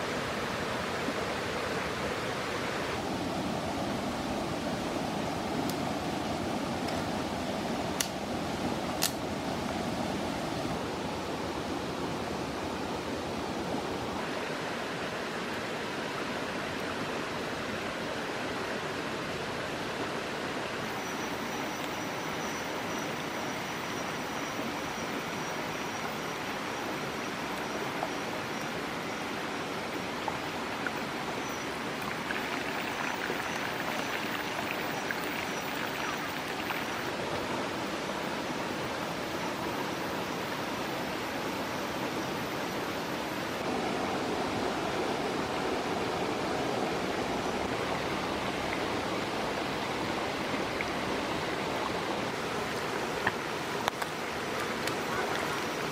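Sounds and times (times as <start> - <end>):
stream rushing: 0.0 - 55.9
crackly sizzle of pot bubbling: 32.0 - 36.9.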